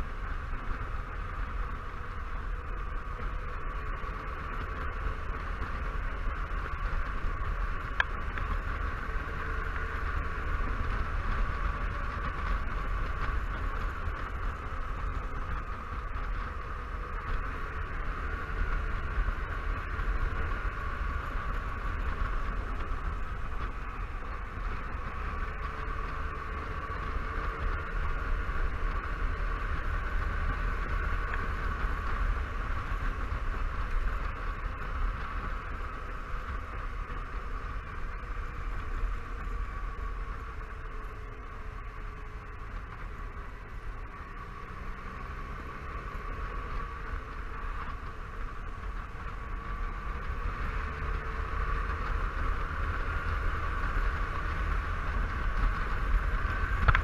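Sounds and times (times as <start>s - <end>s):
scooter engine drone: 0.0s - 57.0s
wind rushing over microphone: 47.5s - 57.0s.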